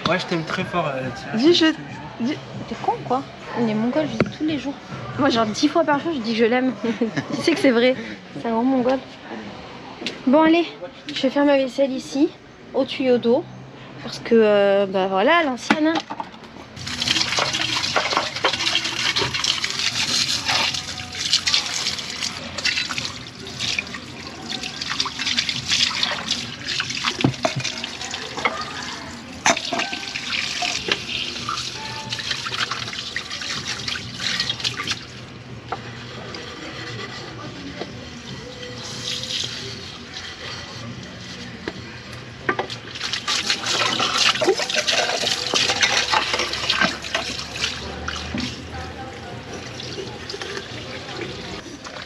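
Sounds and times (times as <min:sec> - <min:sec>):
water running from a hose: 0:16.8 - 0:35.2, 0:38.4 - 0:40.4, 0:42.9 - 0:52.0
glasses and mugs clinking: 0:27.2 - 0:34.6, 0:43.5 - 0:47.4.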